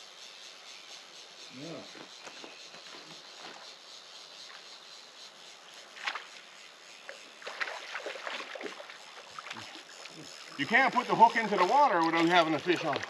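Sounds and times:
fish splashing in water: 7.1 - 13.0
brook flowing: 7.2 - 13.0.

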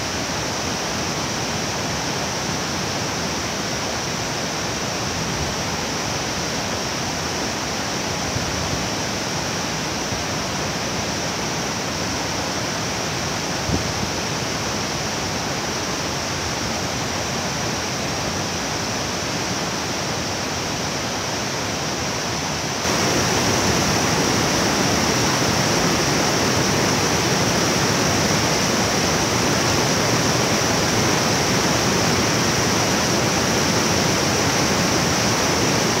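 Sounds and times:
waterfall rushing: 14.3 - 36.0
water tumbling over rapids: 22.6 - 36.0.

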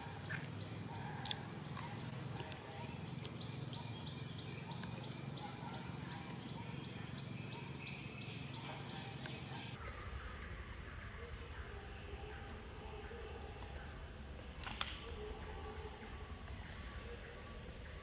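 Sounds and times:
animal chirping: 0.0 - 9.8.

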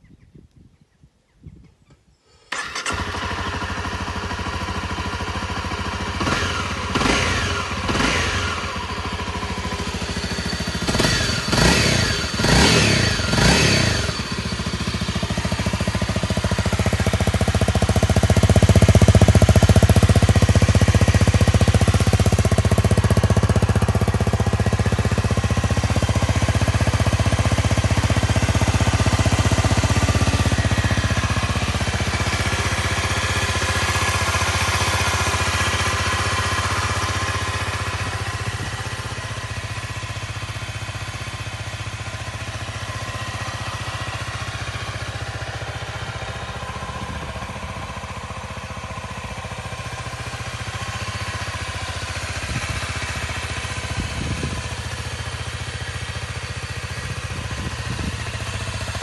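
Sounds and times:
motorcycle engine revving and idling: 2.5 - 59.0.

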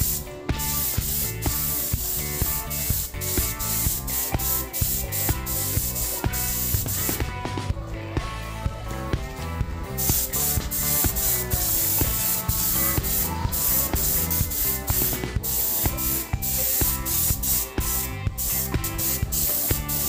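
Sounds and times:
spray gun hissing: 0.0 - 7.2, 10.0 - 20.0
pop music with steady beat: 0.0 - 20.0.

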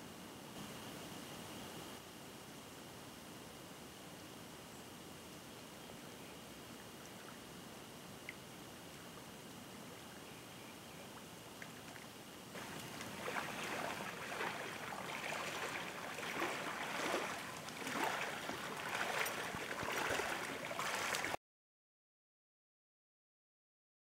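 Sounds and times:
fish splashing in shallow water: 11.2 - 21.4.

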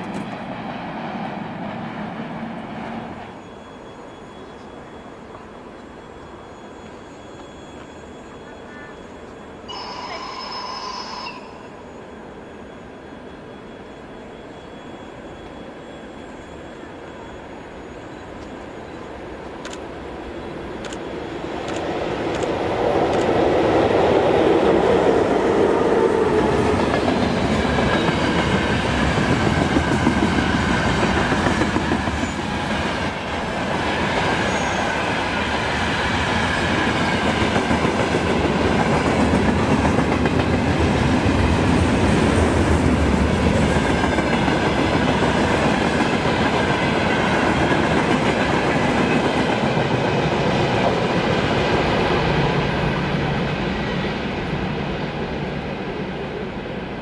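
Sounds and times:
train wheels clattering on rails: 20.8 - 55.4.

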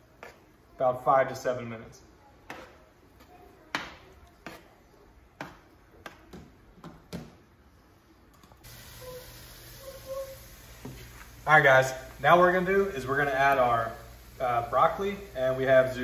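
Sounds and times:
steady hiss: 8.6 - 16.0.

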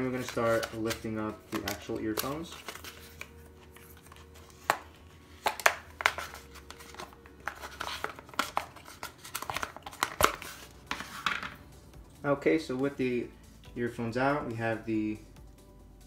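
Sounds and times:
cardboard rustling and scraping: 0.0 - 11.6.

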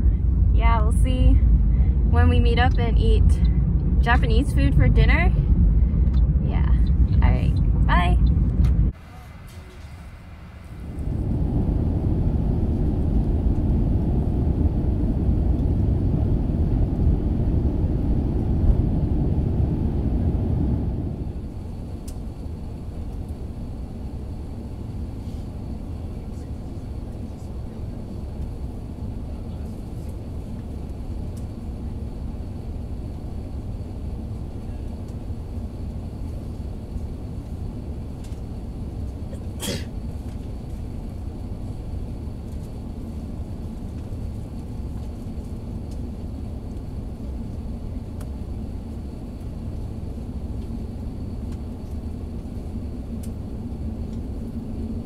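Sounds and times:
airliner cabin rumble: 0.0 - 55.0
faint high whine: 0.0 - 55.0.

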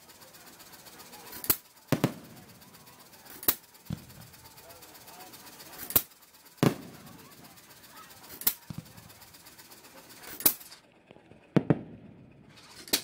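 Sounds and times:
fireworks booming: 1.8 - 4.6, 6.6 - 7.8, 8.5 - 9.3, 10.5 - 13.0.

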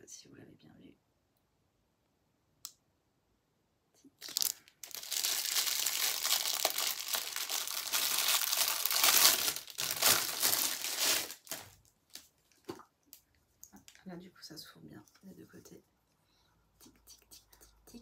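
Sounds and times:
plastic wrapping crinkling: 4.2 - 12.8.

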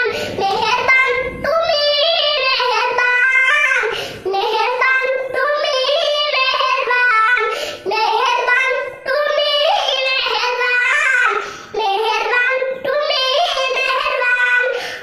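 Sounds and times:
boy singing: 0.0 - 15.0
boy breathing: 0.1 - 0.4, 3.8 - 4.3, 7.4 - 7.9, 11.4 - 11.8, 14.7 - 15.0.

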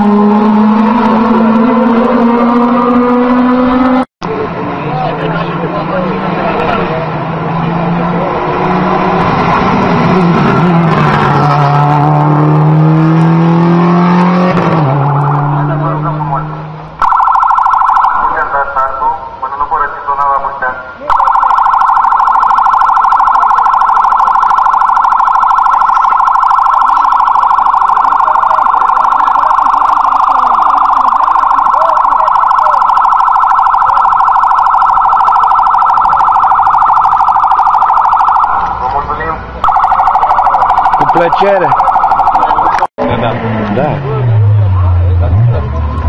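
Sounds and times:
fast-pulsing car siren: 0.0 - 4.0, 12.8 - 19.6, 21.0 - 39.0, 39.6 - 42.9.

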